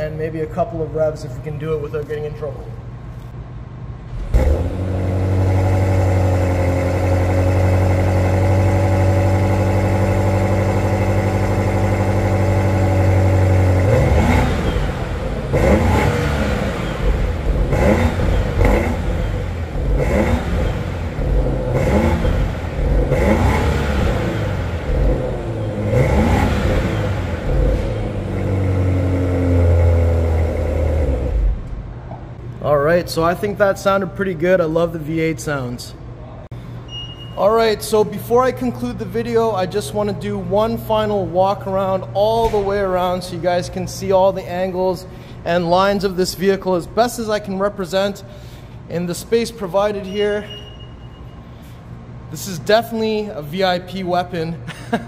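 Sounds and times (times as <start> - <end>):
car engine starting and revving: 4.1 - 31.8.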